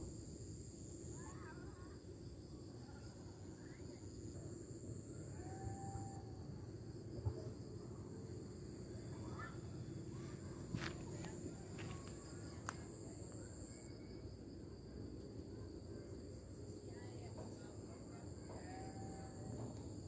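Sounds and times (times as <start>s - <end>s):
insects trilling: 0.0s - 20.0s.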